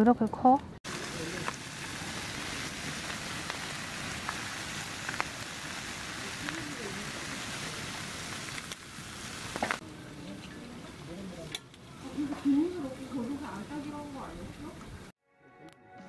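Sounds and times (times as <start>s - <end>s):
sharp frying pops: 0.8s - 13.6s
beef sizzling on a griddle: 0.9s - 14.4s.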